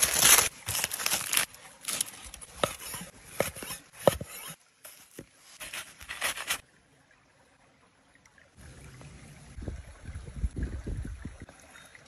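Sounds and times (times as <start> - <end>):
aluminium foil crinkling: 0.0 - 3.1, 4.9 - 6.6.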